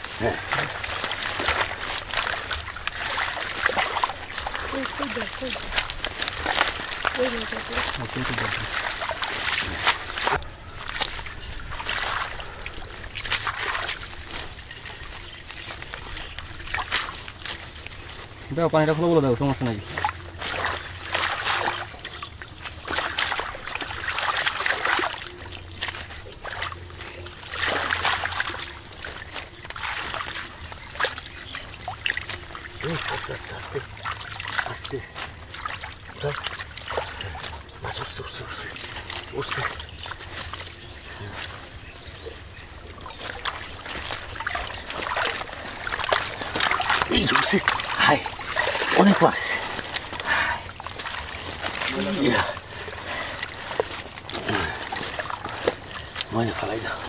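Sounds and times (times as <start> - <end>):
shallow water splashing and trickling: 0.0 - 57.0.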